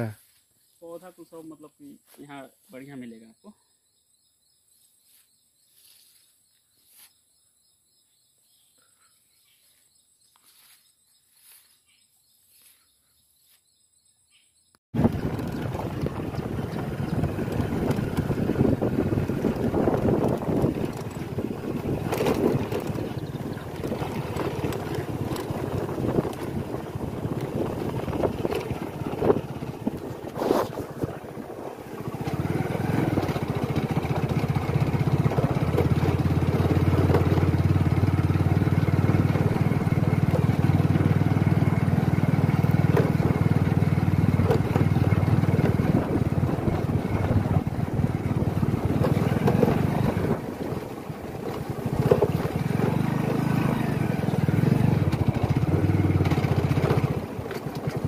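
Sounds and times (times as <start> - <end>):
soft rustles: 5.0 - 7.2, 9.6 - 13.6, 30.2 - 31.2
motorcycle engine running: 15.0 - 58.0
wind buffeting microphone: 15.0 - 58.0.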